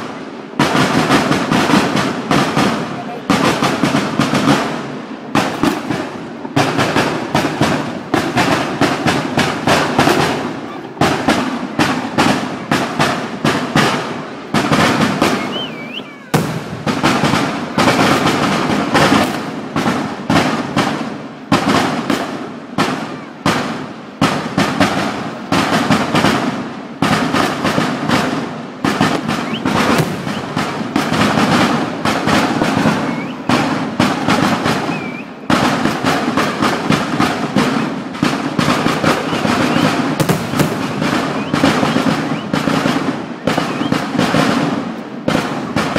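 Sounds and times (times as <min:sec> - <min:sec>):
firecracker bangs and crackling: 0:00.0 - 0:45.9
aerial firework shell bursting: 0:27.1 - 0:43.2.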